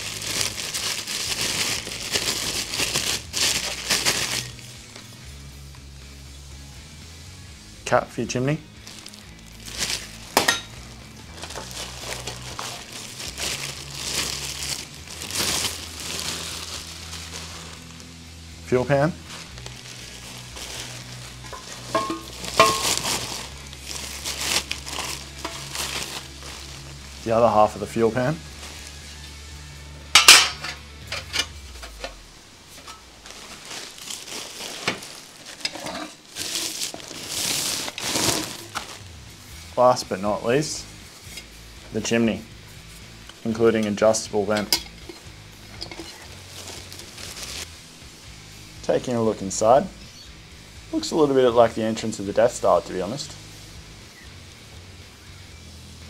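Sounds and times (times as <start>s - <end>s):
plastic wrapping rustling: 0.0s - 5.1s, 8.8s - 29.5s, 30.1s - 39.2s, 42.9s - 47.8s
metal pans clattering down: 21.5s - 23.1s, 30.2s - 32.1s.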